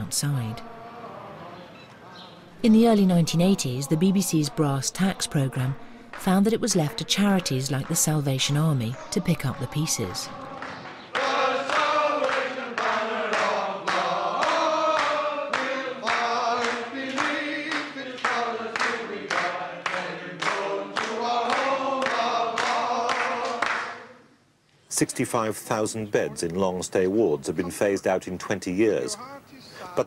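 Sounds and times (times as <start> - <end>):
men singing a hymn: 0.0 - 24.3, 28.8 - 30.0
clapping in time: 6.1 - 8.6, 10.6 - 24.0.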